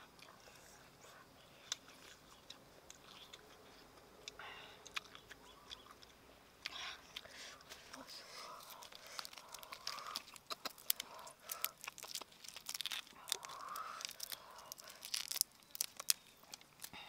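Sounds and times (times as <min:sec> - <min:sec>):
prawn shells cracking and snapping: 0:07.7 - 0:17.0.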